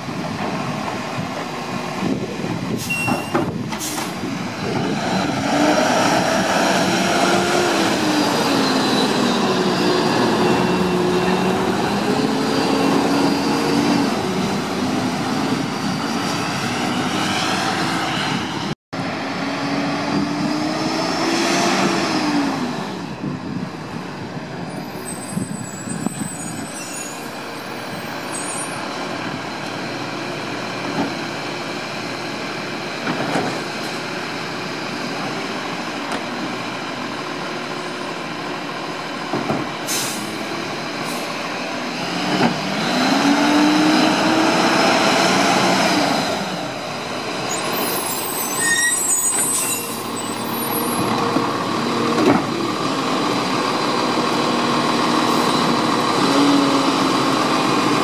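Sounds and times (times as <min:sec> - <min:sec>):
air brakes hissing: 0:02.7 - 0:04.2, 0:39.8 - 0:41.4.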